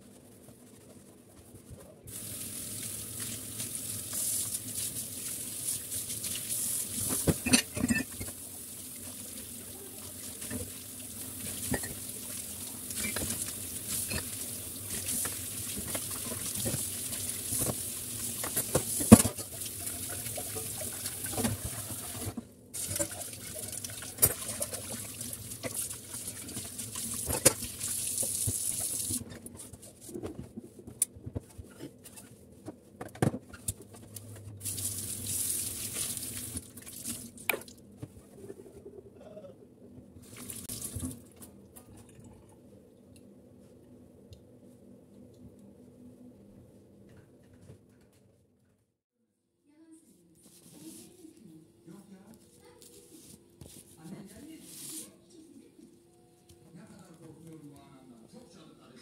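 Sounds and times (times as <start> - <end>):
dishcloth scrubbing and wringing: 0.0 - 32.3, 33.5 - 39.0, 40.2 - 42.6.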